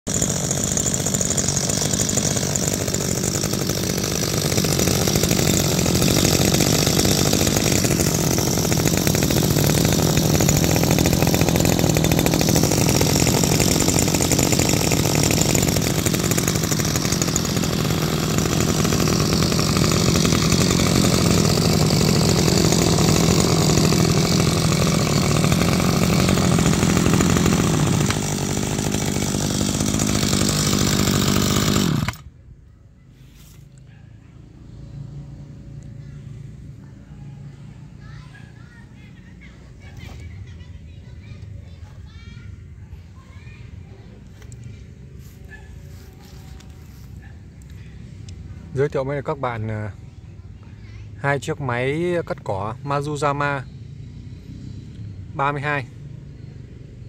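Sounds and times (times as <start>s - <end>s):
brush cutter engine running: 0.1s - 32.4s, 43.9s - 50.0s, 51.5s - 53.7s.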